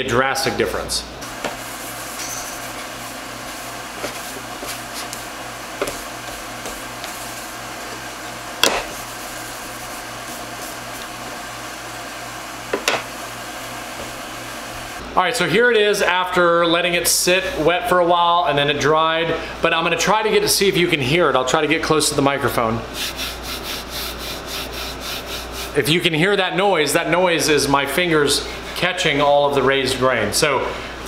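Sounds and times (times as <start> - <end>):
wet rag rubbing on wood: 1.4 - 11.3, 23.0 - 25.8.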